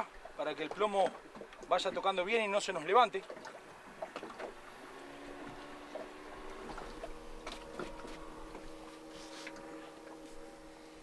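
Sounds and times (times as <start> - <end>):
water splashes: 0.0 - 11.0
faint mechanical hum: 4.5 - 11.0.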